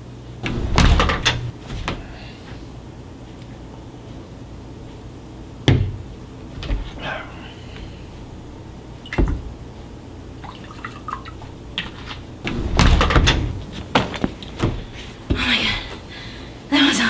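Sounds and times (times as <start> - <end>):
liquor pouring into glass: 10.4 - 11.4.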